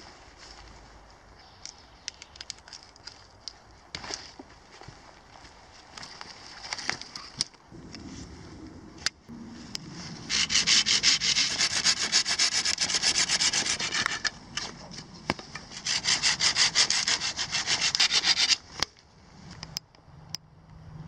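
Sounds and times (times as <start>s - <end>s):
saw cutting through sapling: 10.1s - 18.7s.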